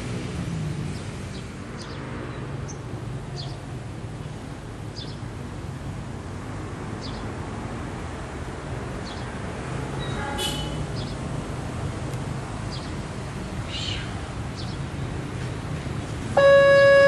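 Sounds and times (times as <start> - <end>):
distant engine drone: 16.4 - 17.0.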